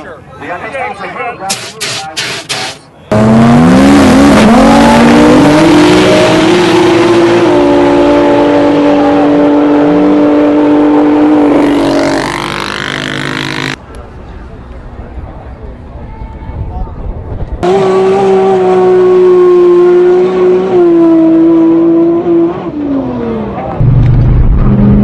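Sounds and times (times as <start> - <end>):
drag car engine at full throttle: 1.5 - 13.8, 17.4 - 25.0.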